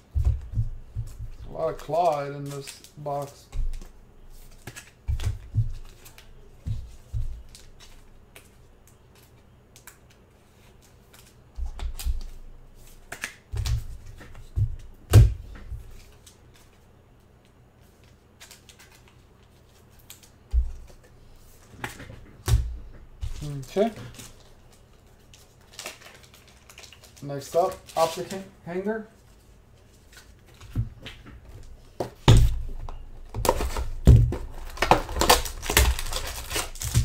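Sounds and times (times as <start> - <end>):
cards clicking and tapping: 0.2 - 10.2, 13.0 - 16.7.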